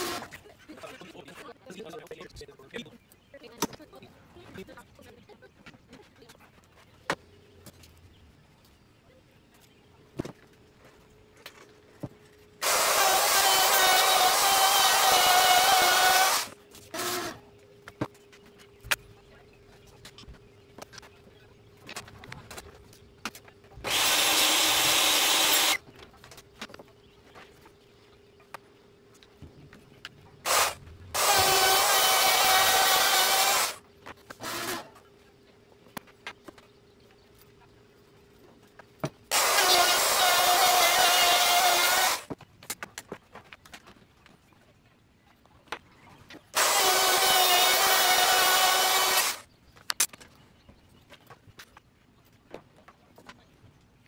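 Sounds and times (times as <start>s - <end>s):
circular saw cutting plywood: 0.0s - 0.4s, 12.6s - 17.5s, 23.8s - 25.8s, 30.4s - 35.1s, 39.3s - 42.3s, 46.5s - 49.4s
power tool running: 0.0s - 0.4s, 12.6s - 17.4s, 23.8s - 25.8s, 30.4s - 33.8s, 34.4s - 35.0s, 39.3s - 42.3s, 46.6s - 49.4s.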